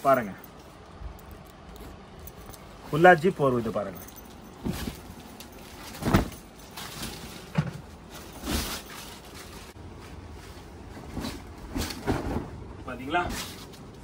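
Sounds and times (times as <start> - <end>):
sheet and packaging rustling: 3.4 - 12.6.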